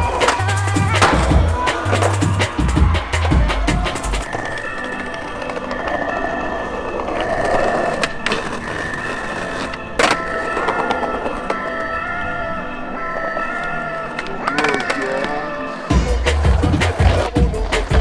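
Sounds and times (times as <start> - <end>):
skateboard impact: 0.0 - 11.8
skateboard clacks: 0.0 - 11.9, 13.2 - 15.6
skateboard wheels rolling on concrete: 0.0 - 18.0.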